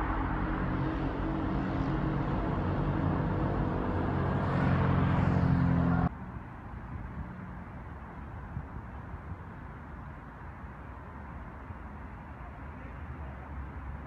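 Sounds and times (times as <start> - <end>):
vehicle engine humming: 0.0 - 6.1
tyre and traffic noise: 0.0 - 14.0.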